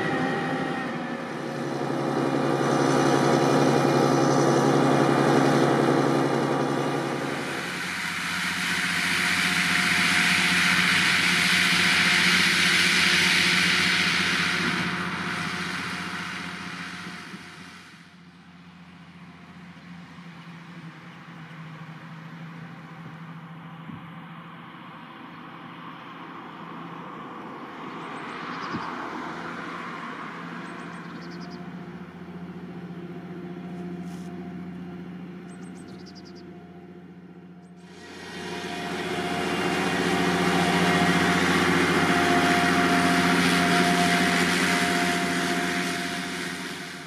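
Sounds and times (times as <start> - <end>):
broad rushing noise: 0.0 - 19.2, 37.6 - 47.0
diesel engine running under load: 0.0 - 47.0.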